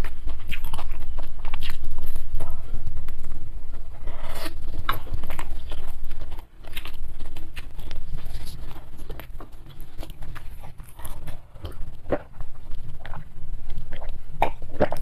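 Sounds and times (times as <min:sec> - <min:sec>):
lip smacks: 0:00.0 - 0:03.4
wet chewing: 0:00.0 - 0:15.0.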